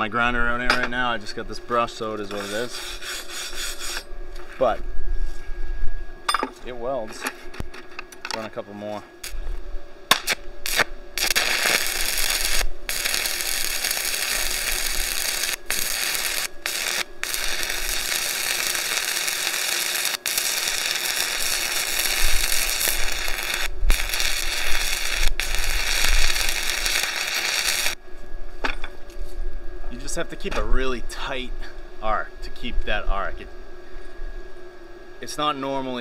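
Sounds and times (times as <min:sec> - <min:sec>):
steady welding arc noise: 0:00.0 - 0:05.8, 0:06.6 - 0:36.0
welding arc strikes: 0:10.1 - 0:28.0.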